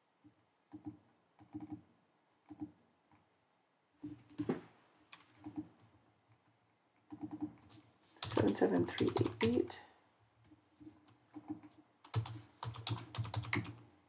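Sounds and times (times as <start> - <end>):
typing on keyboard: 0.7 - 1.8, 2.5 - 2.7, 5.4 - 5.7, 7.0 - 9.7, 11.3 - 13.9.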